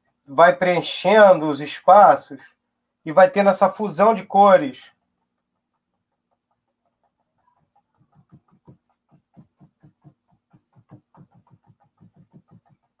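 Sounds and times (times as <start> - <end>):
paintbrush tapping canvas: 3.7 - 13.0.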